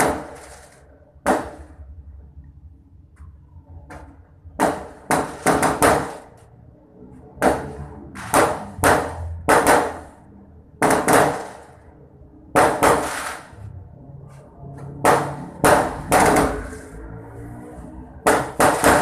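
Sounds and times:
fireworks bangs echoing: 0.0s - 1.8s, 4.6s - 6.3s, 7.4s - 10.2s, 10.8s - 11.8s, 12.5s - 13.6s, 15.0s - 16.9s, 18.2s - 19.0s.

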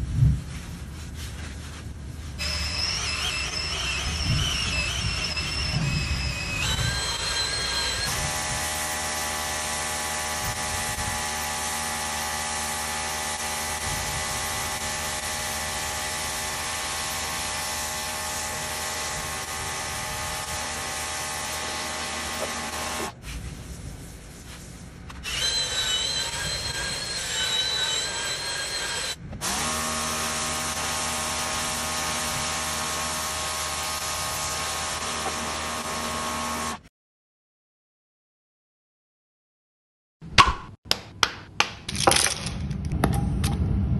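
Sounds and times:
higher whine: 2.4s - 8.9s
pressure washer motor whining: 2.4s - 23.2s, 25.2s - 36.8s.

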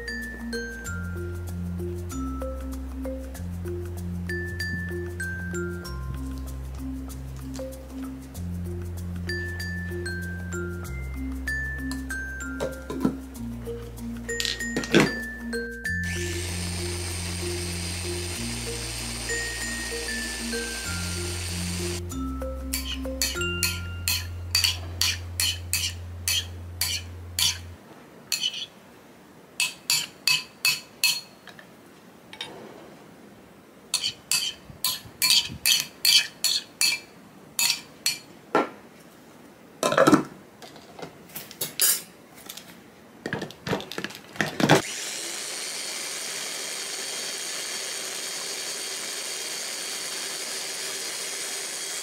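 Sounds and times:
food chopper motor running: 16.0s - 22.0s, 44.8s - 52.0s
metal spoon clinking on glass bowl: 22.7s - 27.6s, 29.6s - 31.4s, 37.6s - 38.3s.

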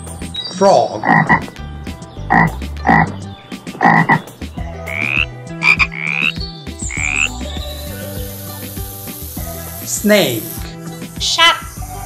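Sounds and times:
frogs croaking: 0.9s - 1.6s, 2.2s - 7.4s
rising frog calls: 1.0s - 1.6s, 2.2s - 8.1s.

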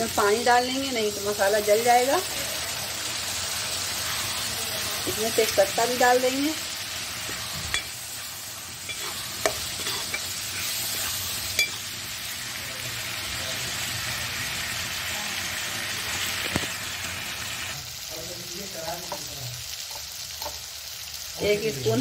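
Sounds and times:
spices sizzling in oil: 0.0s - 22.0s
metal spatula scraping pan: 3.6s - 6.4s, 7.1s - 12.0s.

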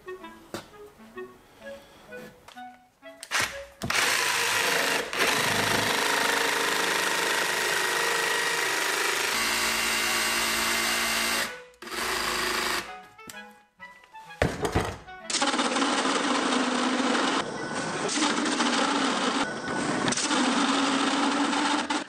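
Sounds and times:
jigsaw cutting board: 3.2s - 12.9s, 14.4s - 22.0s.

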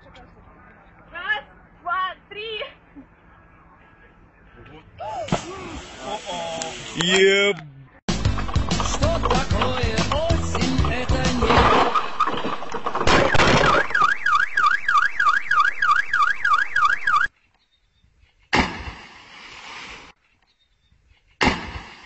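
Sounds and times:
tree crashing onto car: 11.2s - 14.1s
car alarm wailing: 13.1s - 17.3s.

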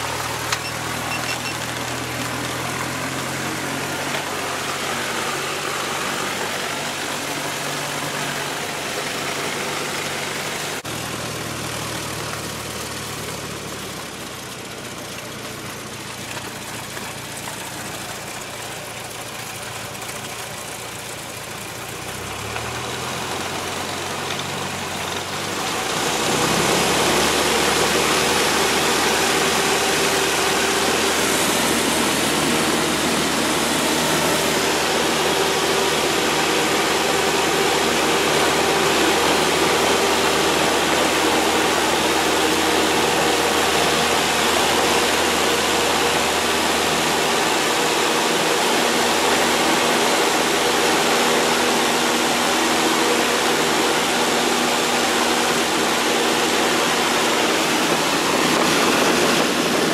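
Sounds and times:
airplane engine drone in cabin: 27.0s - 59.9s.

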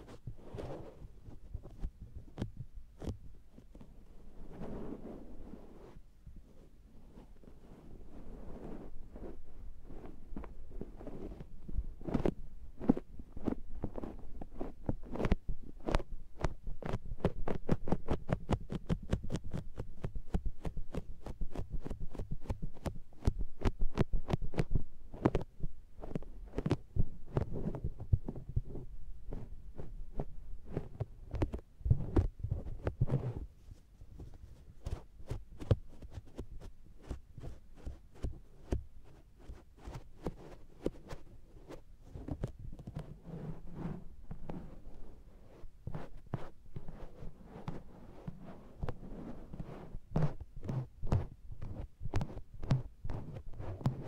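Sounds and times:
sponges patting on microphone: 8.6s - 54.0s.

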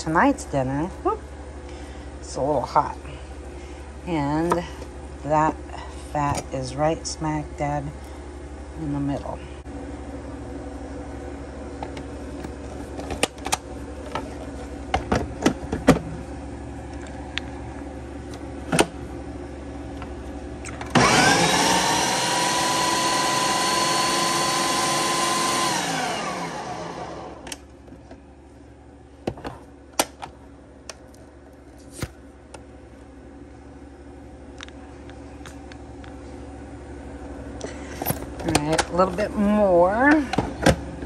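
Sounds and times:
food processor motor: 20.8s - 27.6s.

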